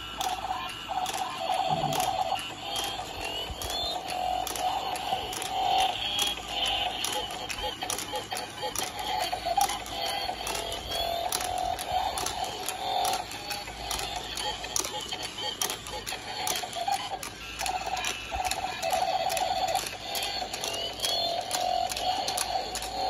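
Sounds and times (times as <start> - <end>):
tinny electronic toy tune: 0.0 - 15.2
toy motor clicking and rattling: 0.0 - 23.0.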